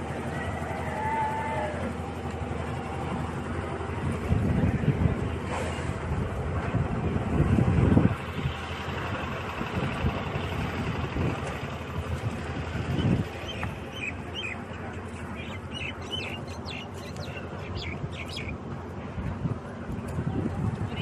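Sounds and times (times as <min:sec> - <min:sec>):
wind on microphone: 0:03.9 - 0:08.6, 0:09.2 - 0:13.9, 0:17.7 - 0:21.0
birds chirping: 0:12.8 - 0:18.6.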